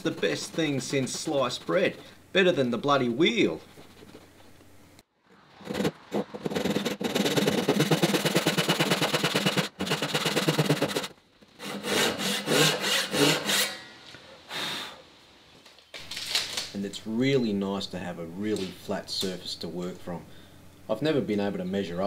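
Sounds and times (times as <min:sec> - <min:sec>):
hand saw cutting wood: 0:05.6 - 0:13.9.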